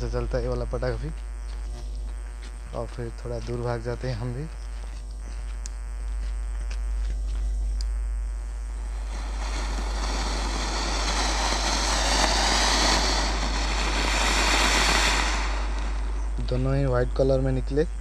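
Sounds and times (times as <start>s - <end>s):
firework fountains hissing: 8.6s - 17.8s.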